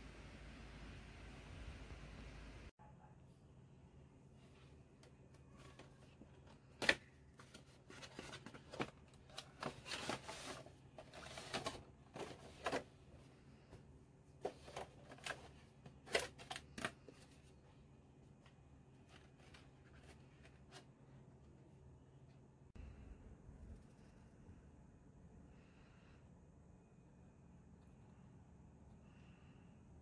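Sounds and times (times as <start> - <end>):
cardboard and plastic crinkling: 5.6 - 13.0.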